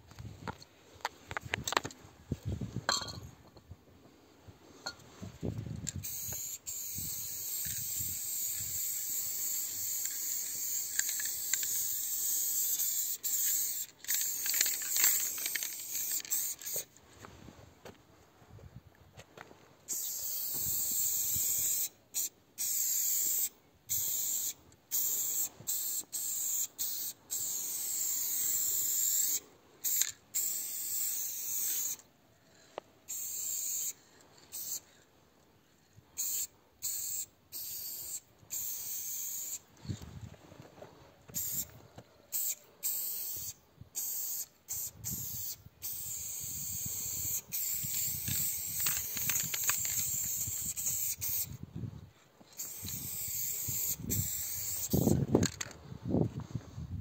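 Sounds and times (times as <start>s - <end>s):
spray paint can hissing: 5.9s - 16.9s, 19.9s - 32.1s, 33.1s - 34.8s, 36.2s - 39.6s, 41.3s - 41.7s, 42.3s - 51.6s, 52.6s - 55.7s.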